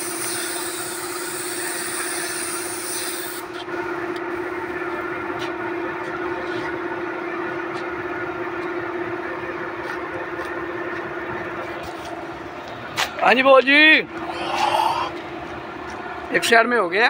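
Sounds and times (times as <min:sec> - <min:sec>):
paint spray gun hissing: 0:00.0 - 0:03.5
air compressor humming: 0:00.0 - 0:17.0.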